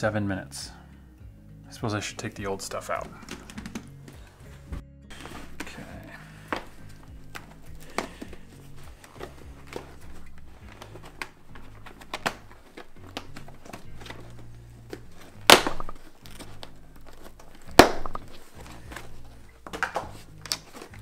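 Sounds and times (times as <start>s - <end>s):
fabric scratching and crinkling: 6.7s - 21.0s
velcro ripping: 6.8s - 21.0s.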